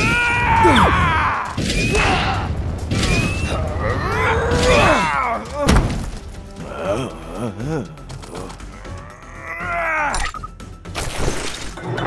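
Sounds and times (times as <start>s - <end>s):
groan-like vocal sounds: 0.0s - 2.5s, 6.6s - 10.2s.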